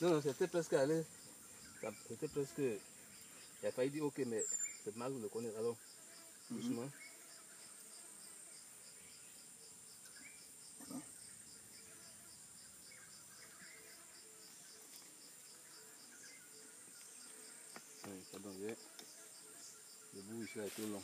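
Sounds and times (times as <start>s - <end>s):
pulsing insect chirp: 0.0s - 21.0s.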